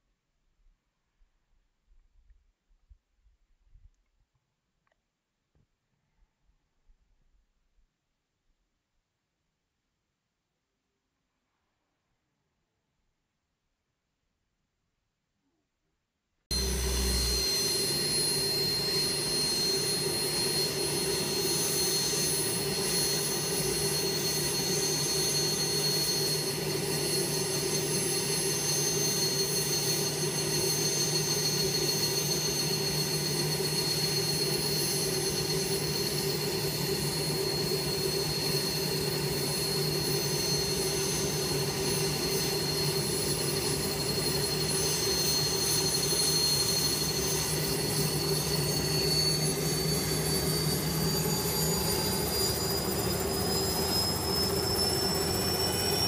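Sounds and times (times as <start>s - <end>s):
low hum: 16.5s - 28.6s
helicopter turbine whine: 16.5s - 56.0s
main rotor turning slowly: 16.5s - 56.0s.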